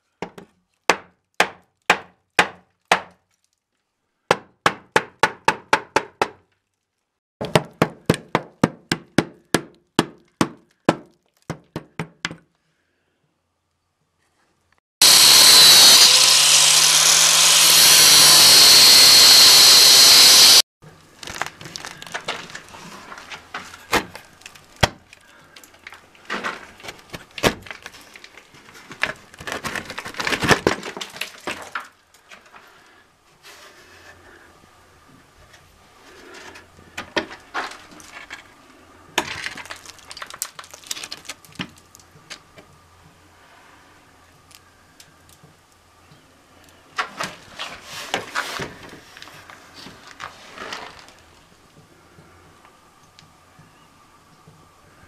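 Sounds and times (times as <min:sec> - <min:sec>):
hammer striking wooden frame: 0:00.2 - 0:03.2, 0:04.3 - 0:06.4
angle grinder cutting wood: 0:15.0 - 0:20.6
knocks and cracking: 0:21.1 - 0:32.7, 0:39.2 - 0:42.7.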